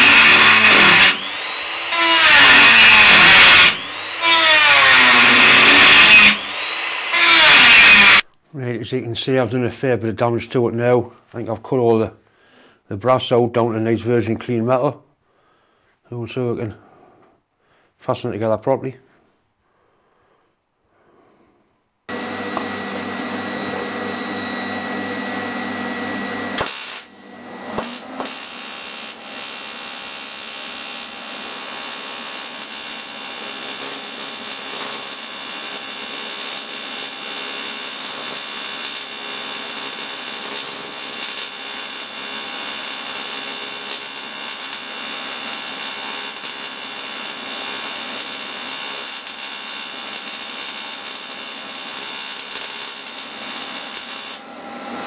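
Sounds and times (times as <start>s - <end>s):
welding arc hissing: 0.0s - 8.2s, 26.6s - 27.1s, 27.8s - 54.4s.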